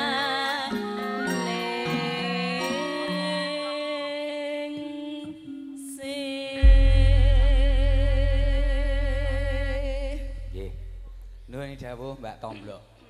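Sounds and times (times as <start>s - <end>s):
deep gong stroke: 6.6s - 11.7s.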